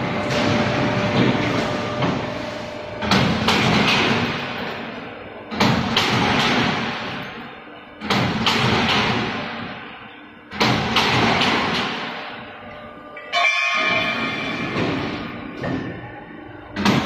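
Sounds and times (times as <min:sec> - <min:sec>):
cut steel ringing: 0:13.2 - 0:15.4.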